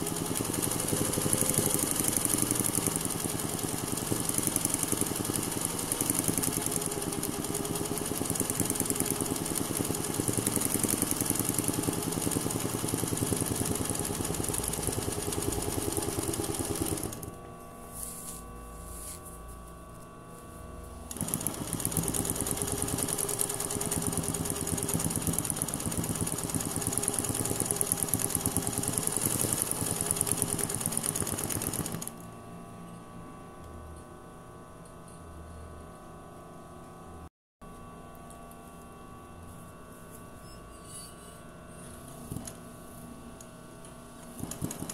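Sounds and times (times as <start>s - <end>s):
sewing machine stitching: 0.0s - 17.3s, 21.1s - 32.2s, 44.4s - 44.9s.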